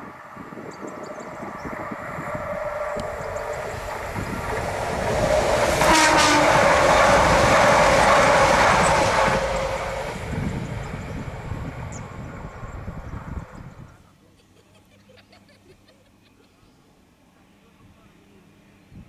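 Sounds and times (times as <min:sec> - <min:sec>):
electric train passing: 0:00.0 - 0:14.0.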